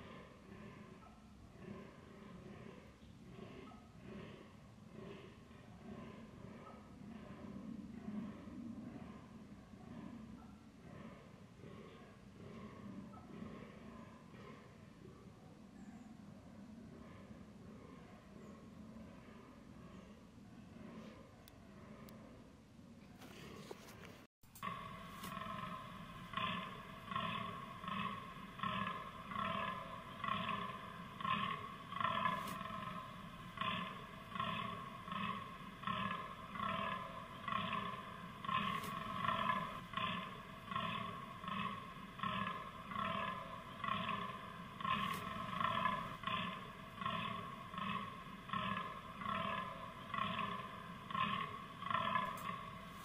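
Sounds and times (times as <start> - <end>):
deer buck groaning: 24.6 - 53.0.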